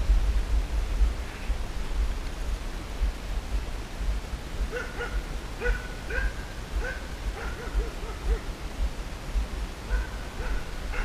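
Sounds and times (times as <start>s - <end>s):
dogs barking: 4.7s - 8.5s, 9.9s - 11.0s.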